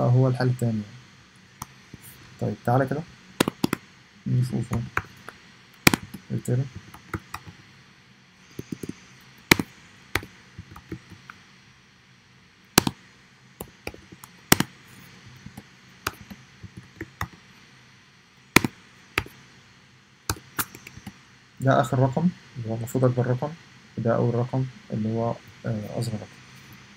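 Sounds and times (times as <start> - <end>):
keyboard key clicks: 5.8 - 6.2, 12.8 - 13.0.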